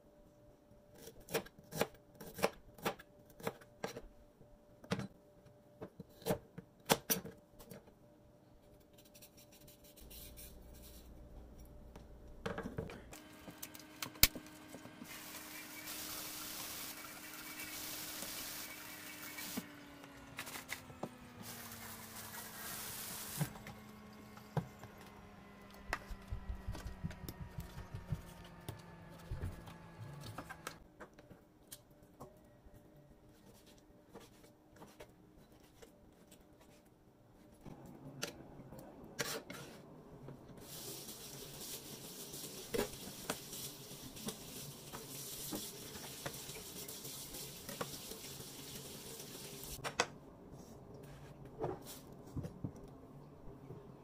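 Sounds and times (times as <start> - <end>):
kitchen faucet running: 13.6 - 19.9, 40.7 - 49.8.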